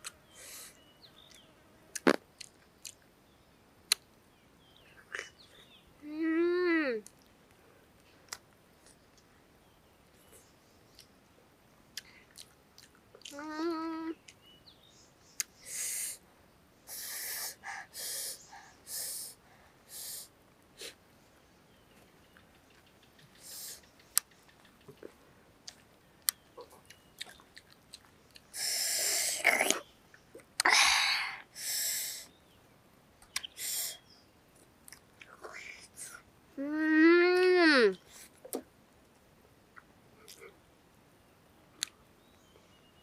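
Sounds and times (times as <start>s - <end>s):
person taking short sharp breaths: 0.3s - 0.8s, 16.9s - 21.0s
mouth clicks and smacks: 1.2s - 3.1s, 3.9s - 4.1s, 33.2s - 33.9s, 39.7s - 40.6s
wet chewing: 25.0s - 28.5s.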